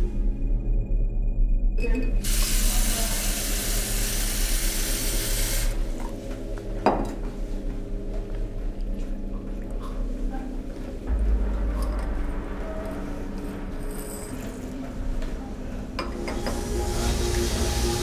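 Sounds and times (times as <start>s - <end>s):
water running from tap into sink: 2.2s - 5.8s.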